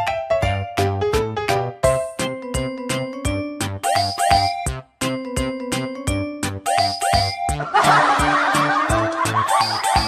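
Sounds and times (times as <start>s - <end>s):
upbeat background music: 0.0s - 10.0s
burst of laughter: 7.6s - 9.7s.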